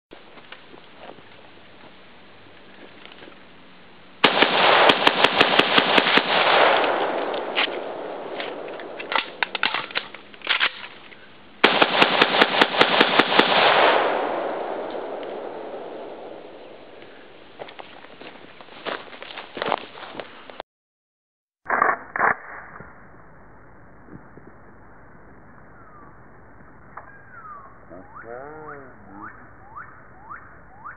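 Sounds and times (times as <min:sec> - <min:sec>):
rifle shots echoing: 0:04.2 - 0:10.9, 0:11.6 - 0:17.0
metallic clacks of rifle handling: 0:07.4 - 0:11.2.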